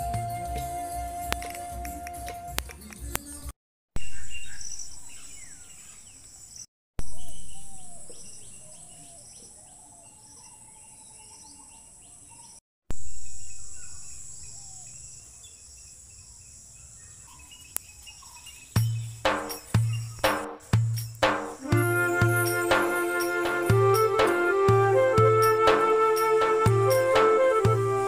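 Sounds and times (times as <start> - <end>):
insects calling in high tones: 13.0 - 24.5.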